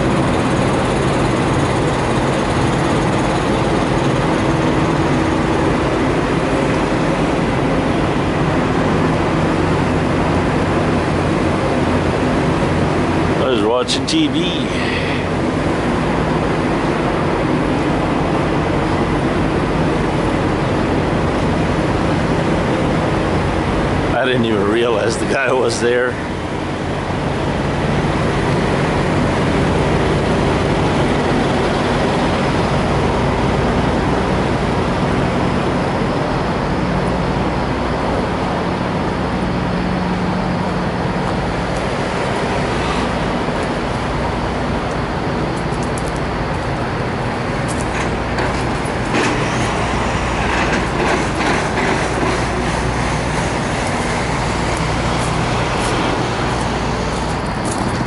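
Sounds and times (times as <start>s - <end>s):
diesel truck engines idling: 0.0s - 58.0s.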